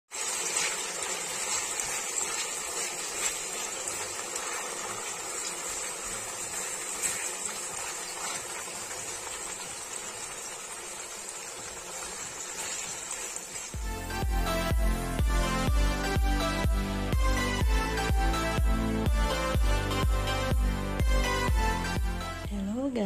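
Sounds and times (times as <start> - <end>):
chicken sizzling in hot oil: 0.0 - 14.2
spatula stirring in pan: 0.1 - 13.8.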